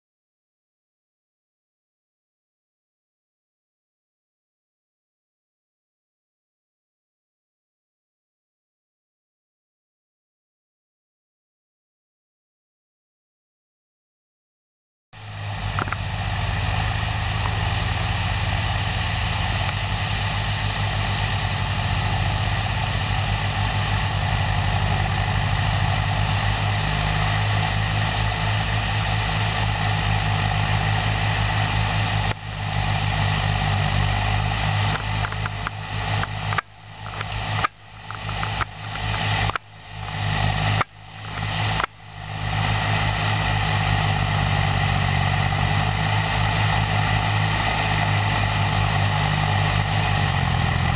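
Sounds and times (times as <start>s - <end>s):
tractor diesel engines running: 15.2s - 50.9s.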